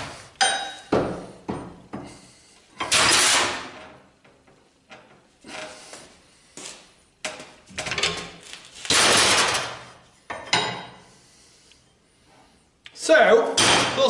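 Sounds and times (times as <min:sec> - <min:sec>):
metal tools knocking and clanking: 0:00.4 - 0:01.9.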